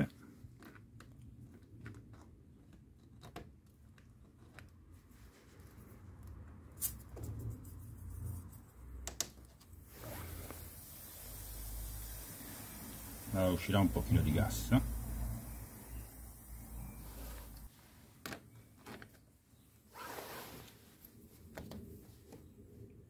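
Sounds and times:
gas hissing from hose: 9.9s - 17.7s.

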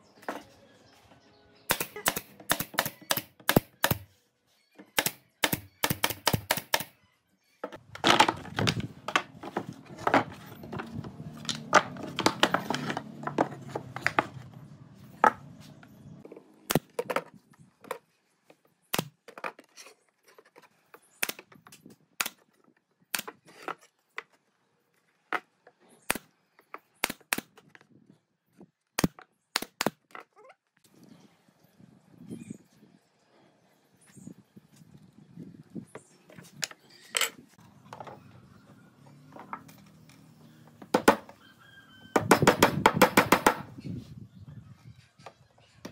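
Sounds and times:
nail gun shots: 1.7s - 4.0s, 5.0s - 6.9s.

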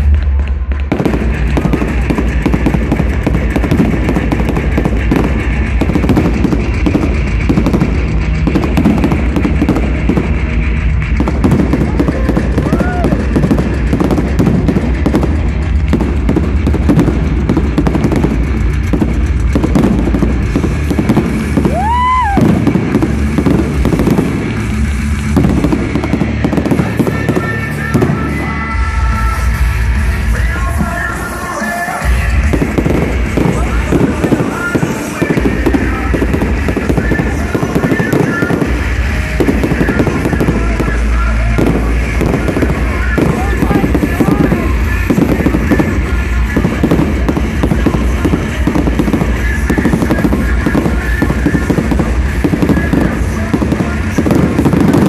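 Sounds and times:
fireworks crackling and banging: 0.0s - 55.0s
firework whistle: 0.9s - 55.0s.

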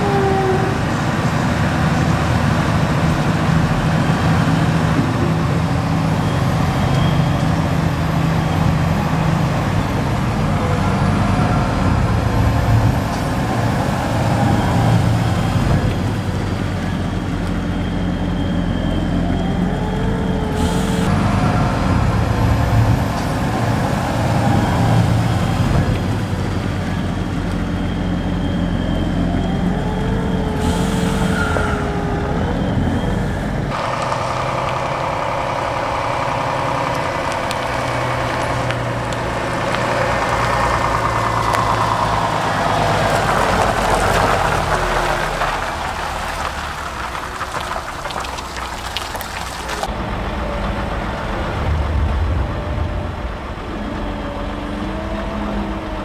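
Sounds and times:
wavering machine whine: 0.0s - 39.4s
diesel tractor and loader engines: 0.0s - 56.0s
lorry engine running: 0.0s - 56.0s.

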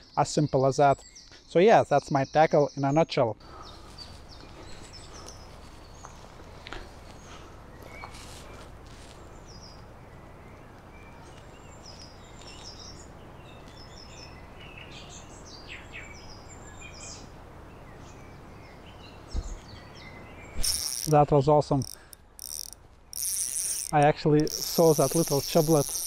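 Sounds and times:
small birds chirping: 0.0s - 26.0s
brief low thump: 19.3s - 19.6s.

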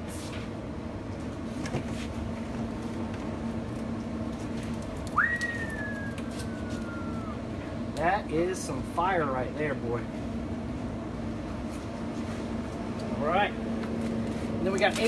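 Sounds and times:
steady low hum: 0.0s - 15.0s
gliding whistled note: 5.2s - 7.4s.

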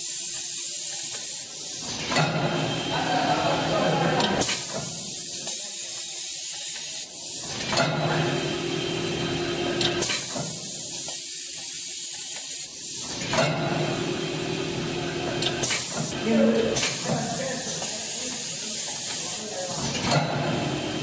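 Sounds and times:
pneumatic air hissing: 0.0s - 2.7s, 4.4s - 7.8s, 8.8s - 14.8s, 15.4s - 16.2s, 16.8s - 20.7s
packing machine humming: 13.1s - 21.0s.

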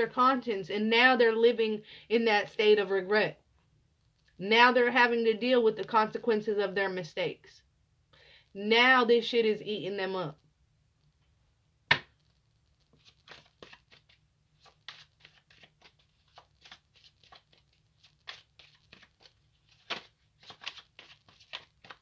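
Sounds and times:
cards being shuffled: 12.8s - 22.0s.

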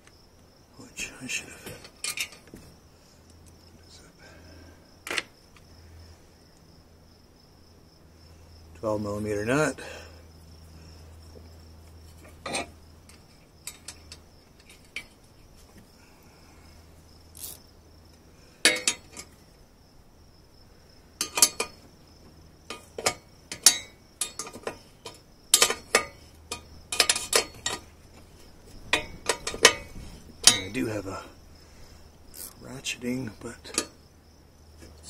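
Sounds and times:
hand tools clinking on metal: 1.6s - 2.5s, 18.6s - 19.3s, 21.2s - 21.8s, 22.7s - 28.0s, 28.9s - 31.1s, 33.6s - 34.0s
wrench turning nut: 17.4s - 17.6s, 32.4s - 32.6s.

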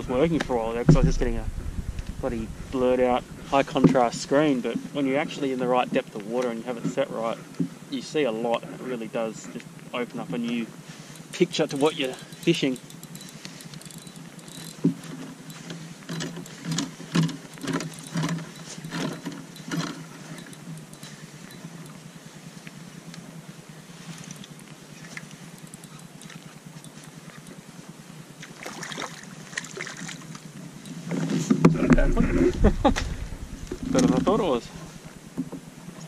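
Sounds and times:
steady low hum: 0.0s - 28.5s, 30.3s - 35.4s
water knocking against kayak: 0.2s - 4.2s
fish splashing: 28.5s - 30.3s.

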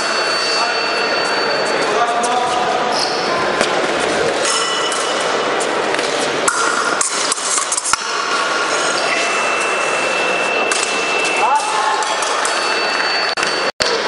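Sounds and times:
fencing blades clinking: 4.4s - 13.7s
steady high electronic tone: 8.2s - 11.6s.

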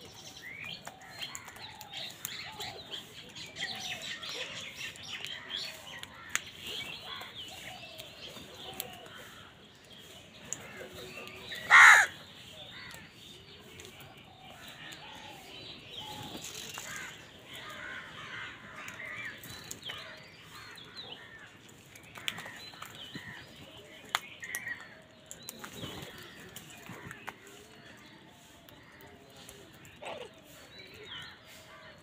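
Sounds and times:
crows calling and chattering: 0.8s - 7.7s, 8.6s - 13.1s, 16.0s - 23.5s
crow cawing: 11.7s - 12.2s.

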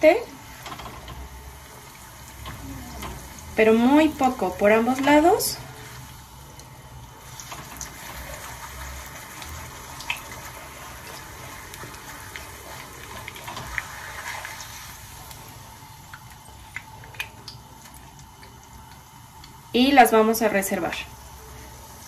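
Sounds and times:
tortilla sizzling in oil: 0.0s - 22.0s.

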